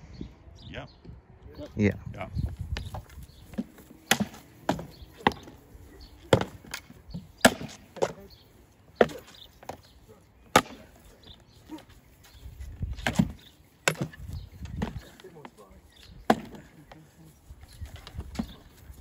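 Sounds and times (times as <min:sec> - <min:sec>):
spear shafts knocking wooden shields: 0:03.5 - 0:05.6, 0:06.2 - 0:08.3, 0:10.5 - 0:11.0, 0:12.9 - 0:15.6, 0:16.2 - 0:17.1.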